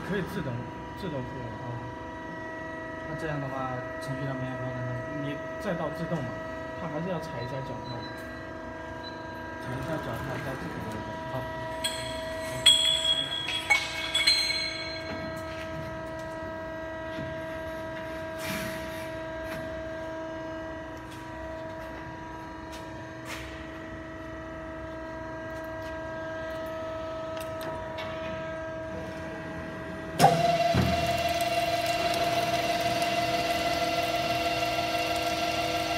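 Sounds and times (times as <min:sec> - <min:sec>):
machine hum with held tones: 0:00.0 - 0:35.9
metallic clanks with ringing: 0:11.8 - 0:15.6.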